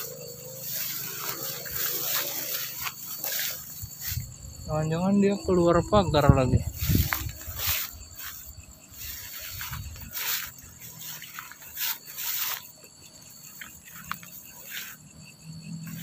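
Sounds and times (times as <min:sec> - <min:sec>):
footsteps through tall grass: 0:00.0 - 0:04.8, 0:06.7 - 0:15.0
insects chirping: 0:00.0 - 0:16.0.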